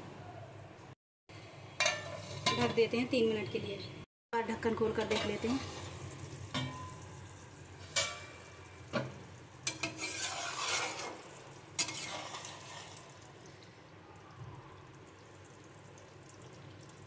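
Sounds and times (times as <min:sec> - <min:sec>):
spatula scraping pan: 0:01.9 - 0:02.7, 0:09.6 - 0:13.0
curry simmering in pan: 0:07.2 - 0:17.0.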